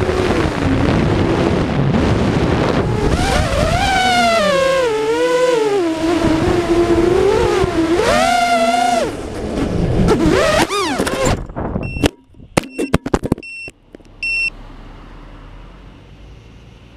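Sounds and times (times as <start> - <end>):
quadcopter motors whining: 2.8 - 11.4
sharp clicks and knocks: 10.6 - 14.2
short high beeps: 11.8 - 14.5.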